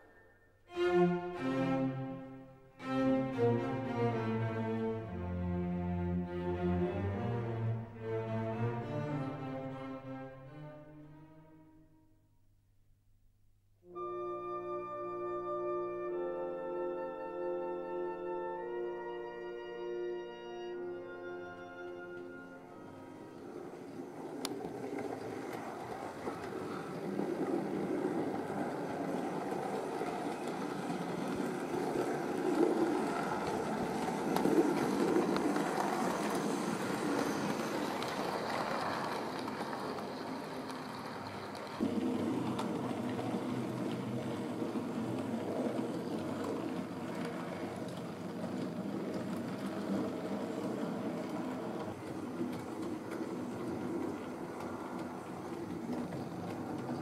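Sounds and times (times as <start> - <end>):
wheels rolling over rails: 21.4 - 57.0.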